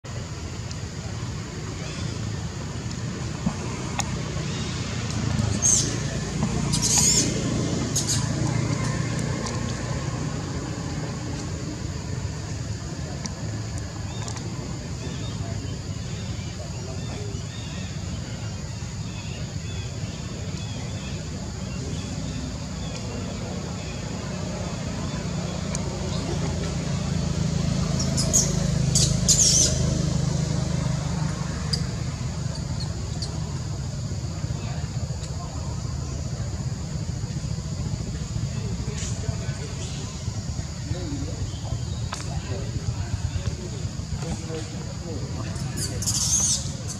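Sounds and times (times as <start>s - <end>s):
steady low hum: 0.0s - 46.9s
baby monkey squeak: 6.7s - 7.3s, 28.1s - 29.8s.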